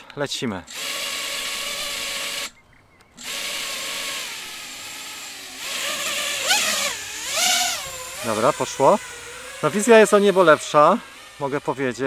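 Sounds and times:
quadcopter motors whining: 0:00.6 - 0:12.0.

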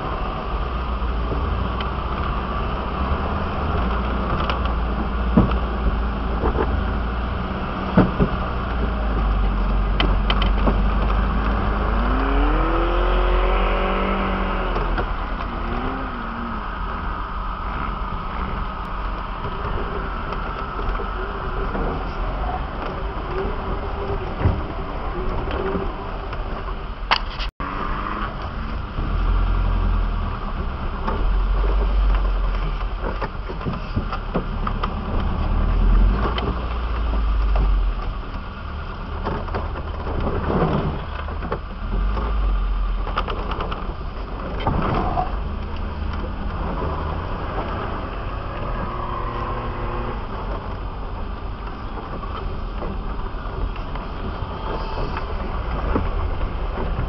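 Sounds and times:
engine rumbling at low speed: 0:00.0 - 0:57.0
knocks and rattles: 0:01.2 - 0:14.1.

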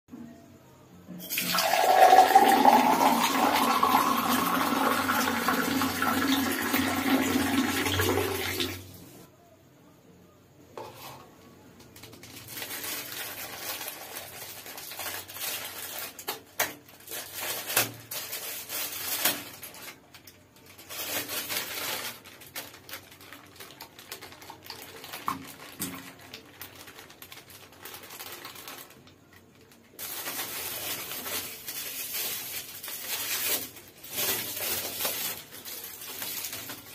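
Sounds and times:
water pouring into glass: 0:01.2 - 0:08.8
foil packet crinkling and clicking: 0:11.8 - 0:36.9.

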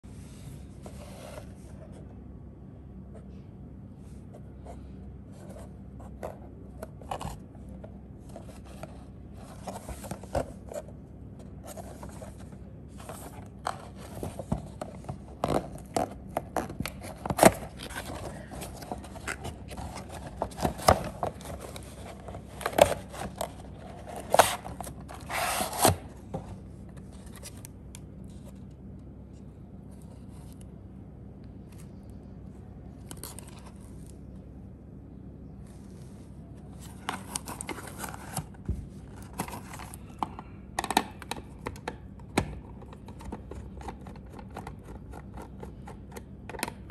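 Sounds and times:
cardboard box being opened: 0:11.6 - 0:27.6.

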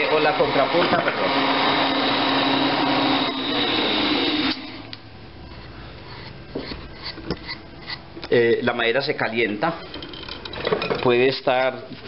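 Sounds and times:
wood lathe whirring: 0:00.0 - 0:08.0.

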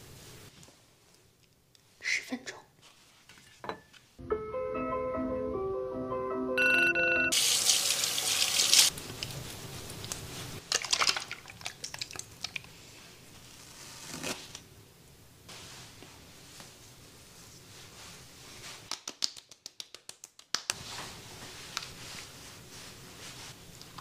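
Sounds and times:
tap water running: 0:07.3 - 0:09.4
water splashing: 0:10.7 - 0:12.6.

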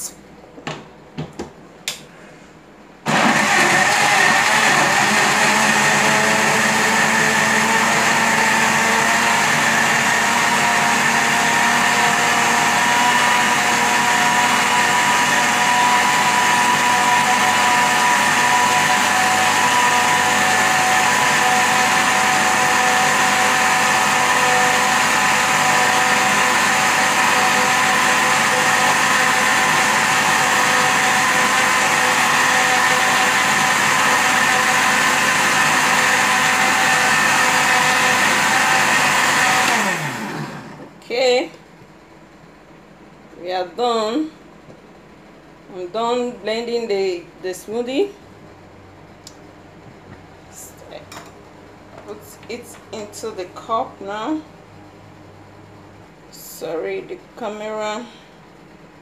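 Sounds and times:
blender motor running: 0:03.1 - 0:40.9.

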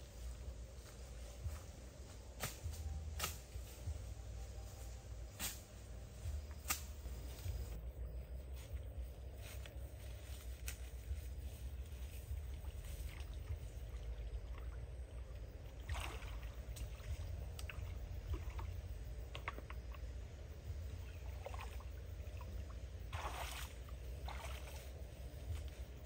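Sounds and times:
steady low rumble: 0:00.0 - 0:26.0
water splashing and sloshing: 0:10.0 - 0:26.0.

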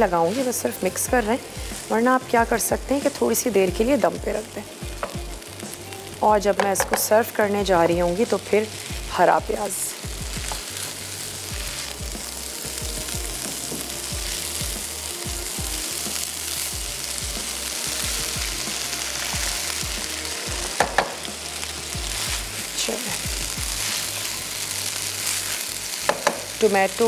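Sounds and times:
rice sizzling in hot oil: 0:00.0 - 0:27.0.

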